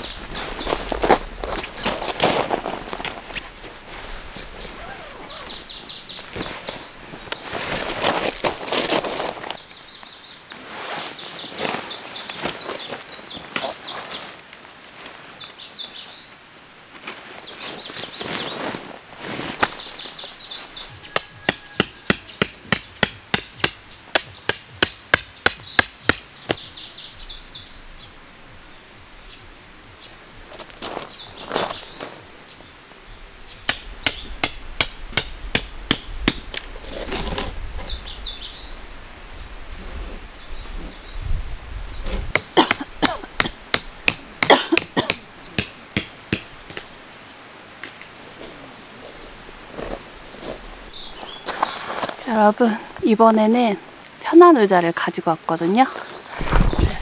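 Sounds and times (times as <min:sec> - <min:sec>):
tent pegs hammered into gravel: 0:21.1 - 0:26.7, 0:33.7 - 0:37.5, 0:42.0 - 0:46.9.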